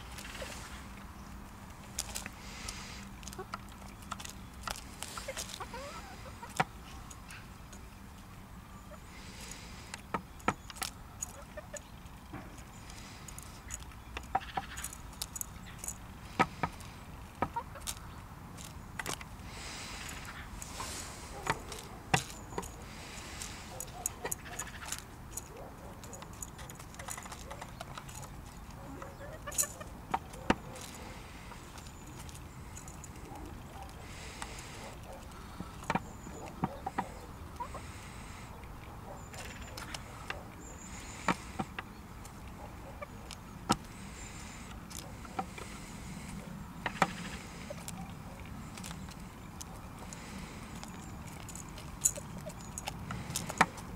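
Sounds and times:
chickens pecking at containers: 0.0 - 53.9
beaks tapping on grain and plastic: 1.3 - 7.9, 9.2 - 37.8.

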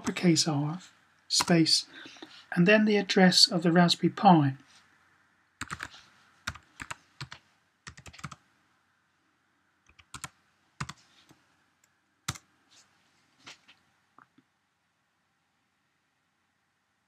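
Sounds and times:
computer keyboard typing: 5.6 - 8.4, 9.8 - 11.4, 12.3 - 12.5.

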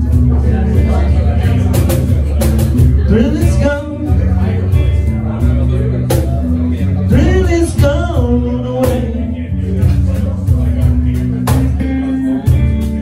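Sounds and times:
cajon: 0.0 - 3.9, 4.7 - 13.0
acoustic guitar: 0.0 - 13.0
man singing into microphone: 2.8 - 13.0.

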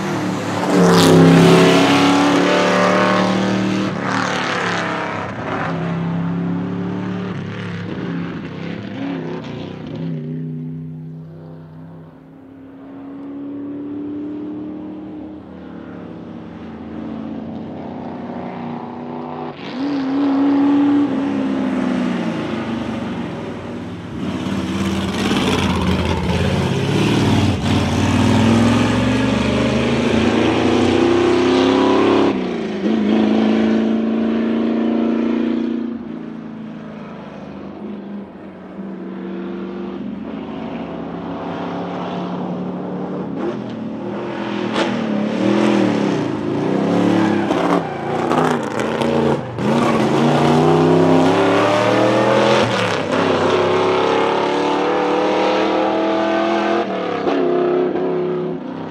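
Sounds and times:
race car engine accelerating: 18.5 - 36.1.

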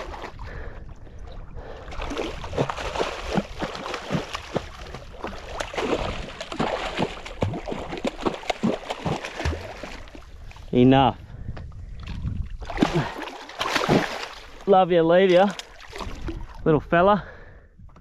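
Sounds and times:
shark splashing in water: 2.0 - 10.1, 12.7 - 14.5.

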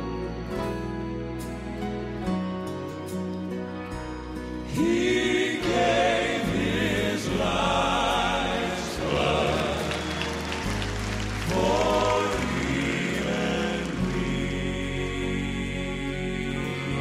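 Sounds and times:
gospel piano: 0.0 - 17.0
male vocal quartet singing: 4.6 - 17.0.

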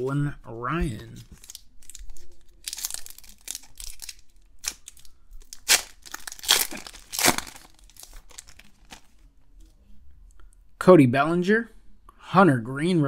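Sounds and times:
foil wrapper tearing and crinkling: 1.3 - 9.1.

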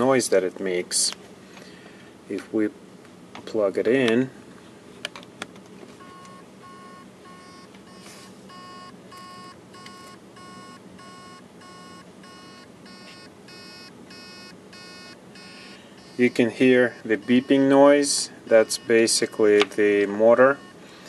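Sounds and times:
hard drive beeping: 6.0 - 21.0.

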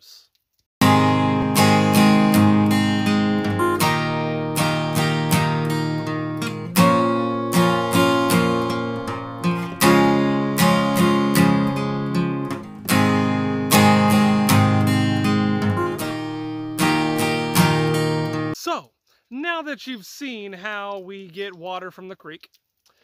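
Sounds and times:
acoustic guitar strumming chords: 0.8 - 18.6.

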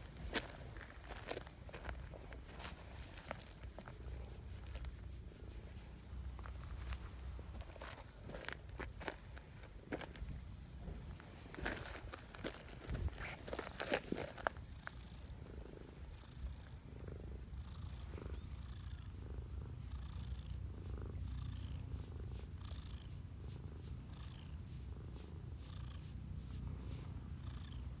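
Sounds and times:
cat purring: 14.5 - 28.0.

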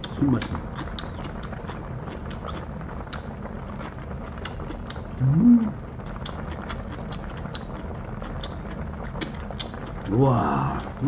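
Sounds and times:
chewing: 0.0 - 10.1
low room hum: 0.0 - 11.0
person humming: 5.2 - 5.8.

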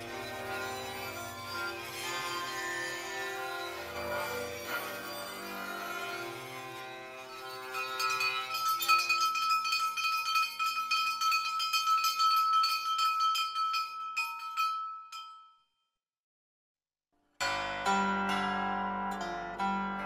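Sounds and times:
small hand bell ringing rapidly: 7.6 - 15.6.

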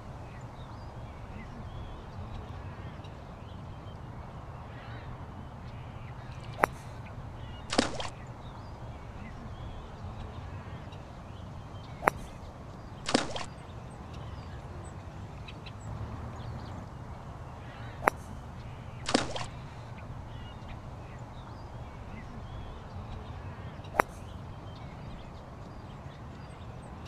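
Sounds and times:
outdoor background hiss: 0.0 - 27.0
golf club hitting ball: 6.4 - 8.2, 11.9 - 12.5, 13.1 - 13.5, 18.0 - 20.0, 23.9 - 24.3
ball splashing into water: 19.1 - 19.5.

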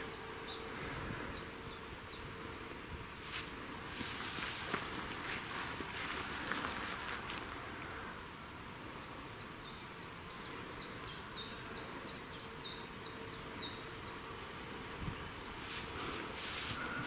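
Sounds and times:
small bird singing: 0.0 - 2.4, 8.4 - 16.2
outdoor background noise: 0.0 - 17.0.

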